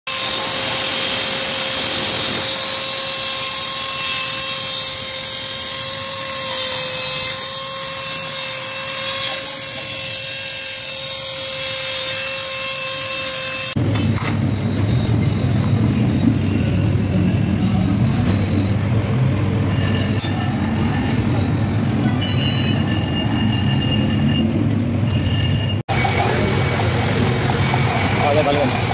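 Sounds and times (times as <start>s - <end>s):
pneumatic hand tool whining: 0.1s - 13.8s.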